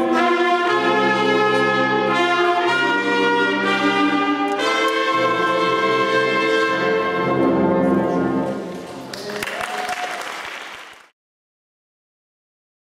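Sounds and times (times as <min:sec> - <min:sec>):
wind ensemble chord: 0:00.0 - 0:08.8
audience applause: 0:09.0 - 0:11.2.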